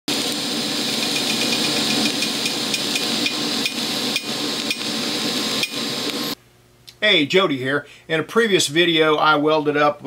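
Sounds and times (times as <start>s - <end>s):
welding arc crackling hiss: 0.1s - 6.4s.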